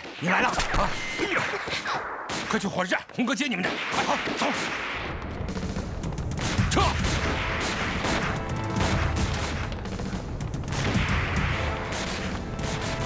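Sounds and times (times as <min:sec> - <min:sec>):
rapid gunfire: 0:02.0 - 0:02.8, 0:03.6 - 0:13.0
dramatic background music: 0:04.6 - 0:13.0.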